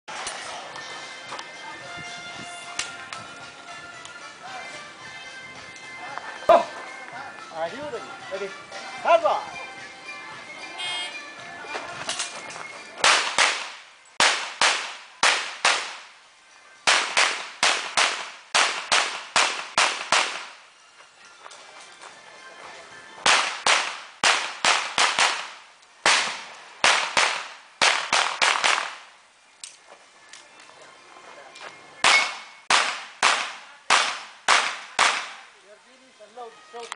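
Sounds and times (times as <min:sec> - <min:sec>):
handgun shots: 0:13.0 - 0:16.0, 0:16.9 - 0:20.5, 0:23.2 - 0:29.0, 0:32.0 - 0:35.4.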